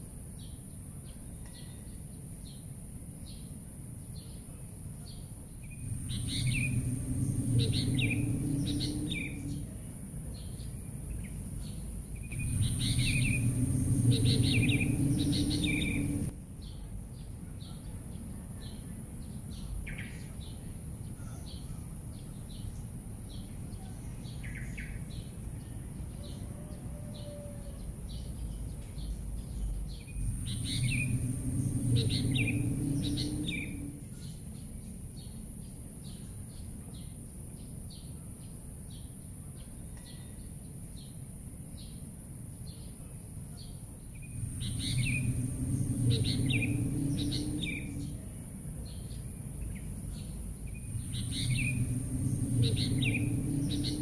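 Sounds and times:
birds chirping: 5.1 - 25.4, 28.1 - 35.4, 43.6 - 54.0
steady high hiss: 5.5 - 16.4, 30.0 - 34.6, 44.0 - 54.0
low rumble: 5.6 - 16.7, 28.3 - 34.6, 44.1 - 54.0.

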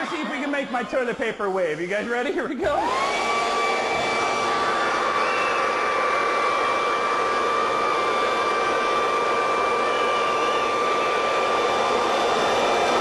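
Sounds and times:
electric air blower whining: 2.6 - 13.0.

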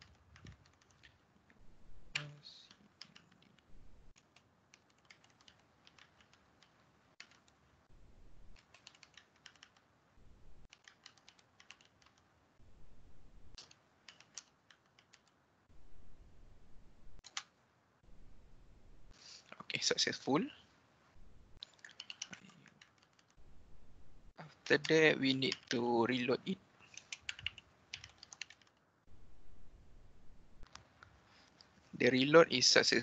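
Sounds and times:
keyboard key clicks: 26.9 - 28.7.

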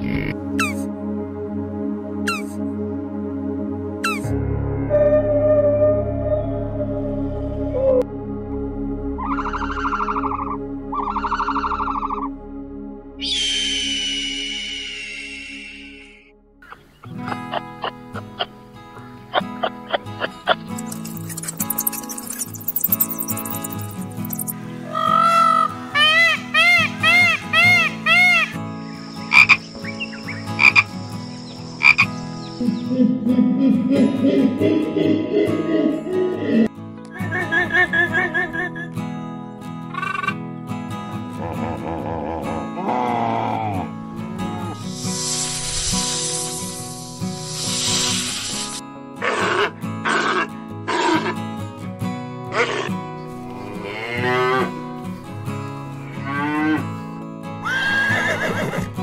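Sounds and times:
frog croaking: 0.0 - 0.8, 9.2 - 12.3, 29.2 - 32.9, 39.9 - 40.4, 47.5 - 51.4
background music: 0.0 - 59.0
cow mooing: 53.5 - 54.8, 56.1 - 57.0.

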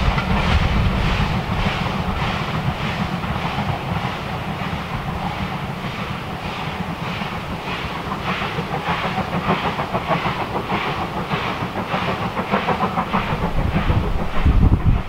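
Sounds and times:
steam locomotive exhaust beats: 0.0 - 15.0
wind buffeting microphone: 0.0 - 15.0.

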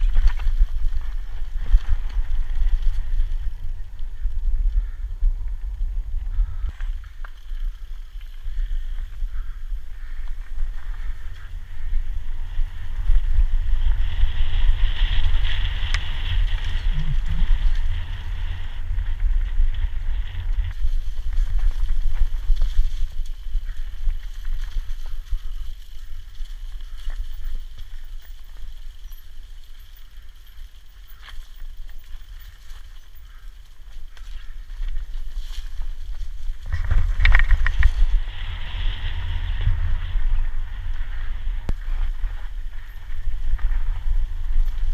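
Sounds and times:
tyres rolling on gravel: 0.0 - 4.9, 14.4 - 39.9
bike rattles and clicks: 0.0 - 44.9
wind buffeting microphone: 0.0 - 44.9.

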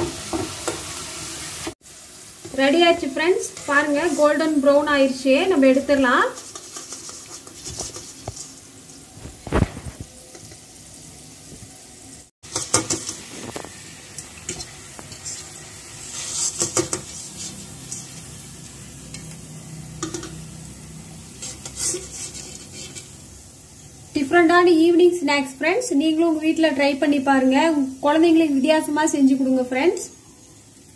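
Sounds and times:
food sizzling in hot oil: 0.0 - 30.9
skimmer scraping metal pan: 3.3 - 4.8, 5.9 - 8.6, 14.5 - 18.3, 21.3 - 23.2.

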